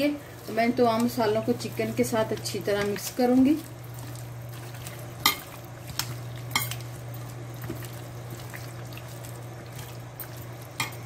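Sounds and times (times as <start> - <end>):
steady low hum: 0.0 - 11.0
wet squelching of kneaded meat: 0.0 - 11.0.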